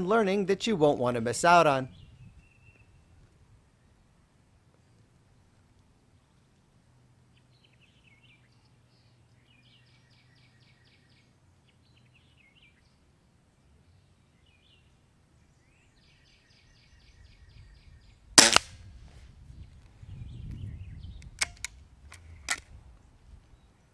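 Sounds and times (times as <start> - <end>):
birds calling faintly: 1.8 - 18.6, 19.6 - 23.9
air rifle shot: 18.4 - 18.9.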